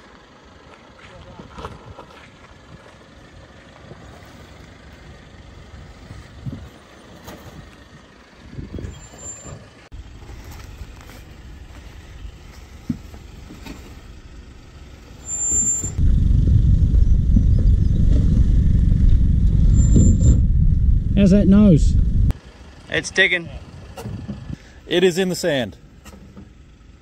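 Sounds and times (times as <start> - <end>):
diesel engine running at low revs: 0.0 - 27.0
tyres and suspension thumping: 6.0 - 22.4.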